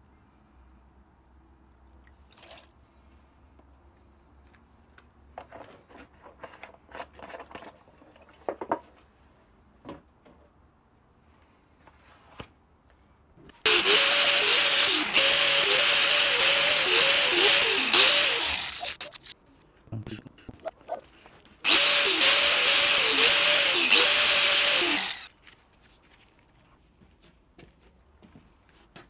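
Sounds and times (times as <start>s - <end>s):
wire brush wheel grinding steel: 13.7s - 19.4s, 21.6s - 25.3s.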